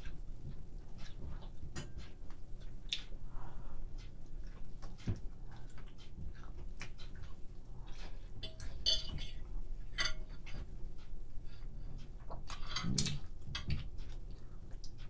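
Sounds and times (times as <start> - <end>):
ringing clinks: 8.4 - 9.4, 10.0 - 10.2
fork scraping a plate: 12.5 - 13.7.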